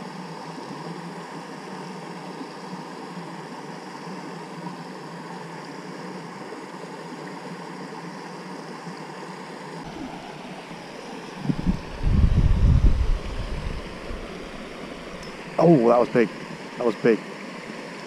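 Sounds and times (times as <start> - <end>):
water rushing: 2.4 - 18.0
low rumble: 11.4 - 14.4.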